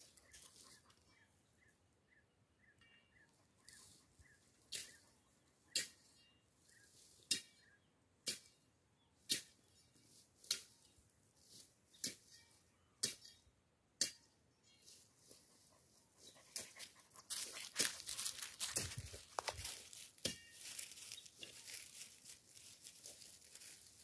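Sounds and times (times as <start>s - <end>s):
machete chopping dry brush: 17.8s - 21.6s.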